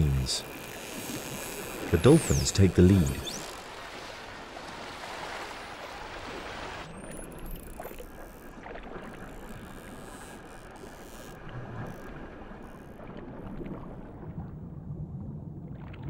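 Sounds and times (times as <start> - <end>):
underwater rumble: 11.4 - 16.0.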